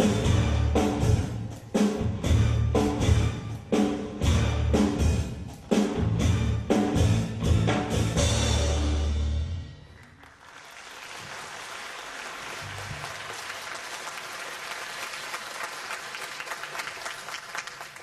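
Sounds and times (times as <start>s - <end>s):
live band with drums: 0.0s - 9.4s
audience applauding: 10.0s - 18.0s.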